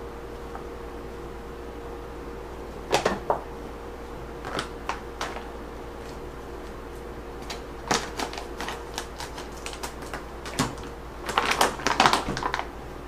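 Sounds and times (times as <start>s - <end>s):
plastic pouch crinkling: 4.4s - 6.2s, 7.4s - 12.7s.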